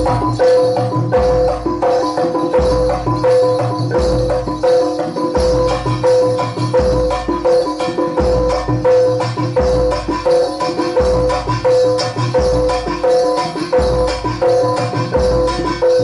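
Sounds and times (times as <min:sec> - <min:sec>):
metal percussion ringing: 0:00.0 - 0:16.0
rattling hand percussion: 0:00.0 - 0:16.0.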